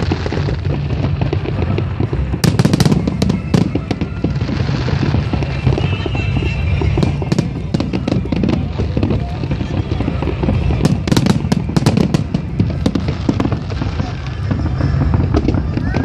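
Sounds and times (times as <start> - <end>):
fireworks bursting: 0.0 - 16.0.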